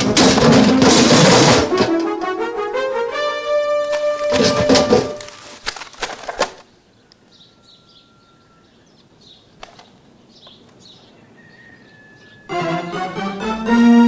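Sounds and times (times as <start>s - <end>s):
sharp clatters: 0.0s - 2.1s, 3.9s - 6.7s
faint birds chirping: 5.4s - 13.1s.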